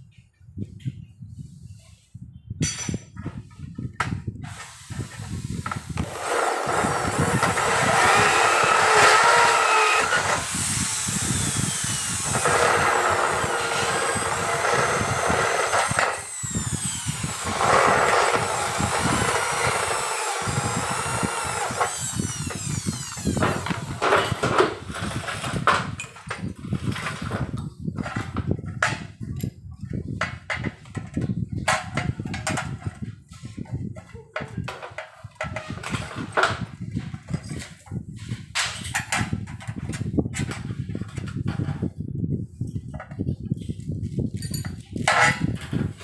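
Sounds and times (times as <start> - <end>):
electric drill cutting aluminium: 4.4 - 27.5.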